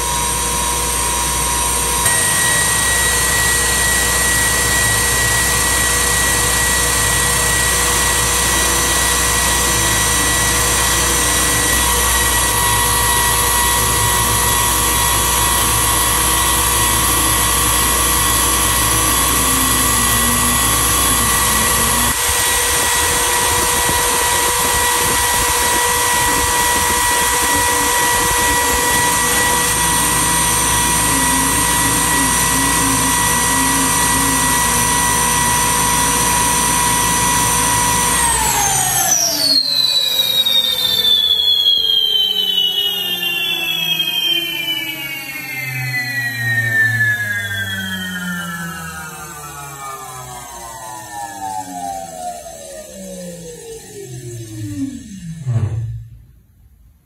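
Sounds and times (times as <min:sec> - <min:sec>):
electric motor whine: 0:00.0 - 0:56.2.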